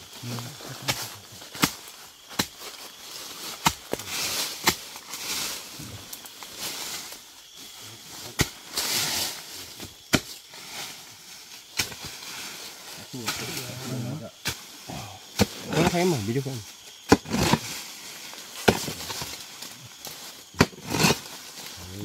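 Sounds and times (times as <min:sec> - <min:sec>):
earth scraping: 0:00.0 - 0:22.0
digging tool striking soil: 0:00.9 - 0:02.8, 0:03.4 - 0:05.3, 0:09.9 - 0:10.4, 0:17.0 - 0:17.8, 0:18.6 - 0:19.4, 0:20.5 - 0:21.3.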